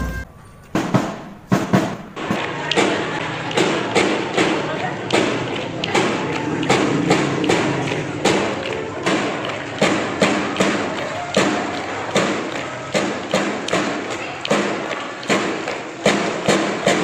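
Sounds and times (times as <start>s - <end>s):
sustained melody notes: 0.0s - 0.5s
marching drums beating: 0.0s - 17.0s.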